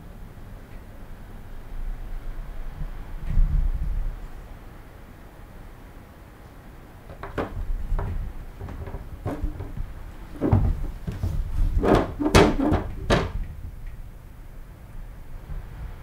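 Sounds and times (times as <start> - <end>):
plastic cat flap knocking: 7.1 - 13.5.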